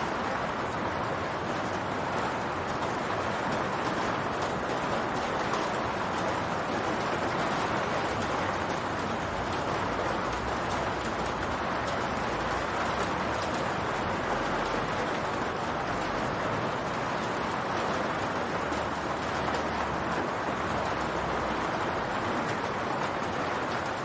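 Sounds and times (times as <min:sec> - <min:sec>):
rain on a roof: 0:00.0 - 0:24.0.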